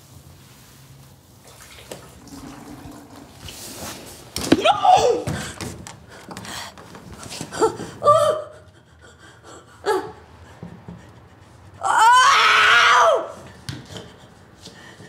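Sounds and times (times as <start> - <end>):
elderly woman gasping cries: 7.4 - 10.2.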